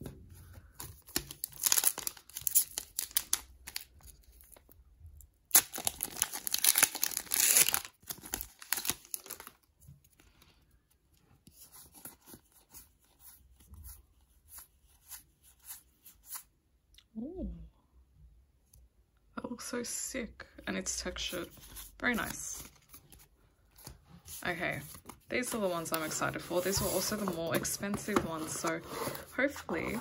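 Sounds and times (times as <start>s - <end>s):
foil wrapper tearing and crinkling: 1.0s - 4.2s, 5.5s - 9.6s.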